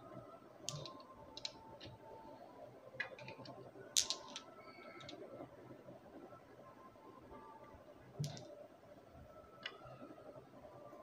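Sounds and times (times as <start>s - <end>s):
marbles clicking on wooden run: 0.7s - 1.9s, 3.0s - 5.2s.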